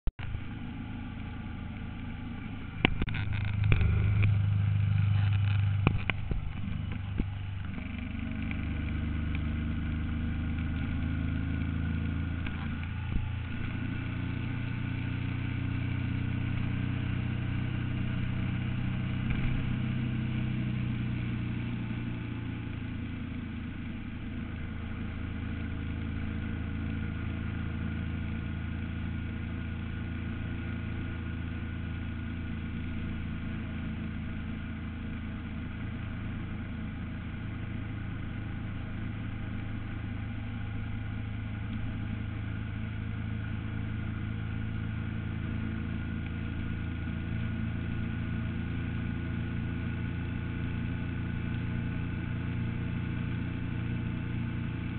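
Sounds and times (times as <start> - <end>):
engine running at road speed: 0.2 - 54.9
knocks and low rumble: 2.6 - 7.9.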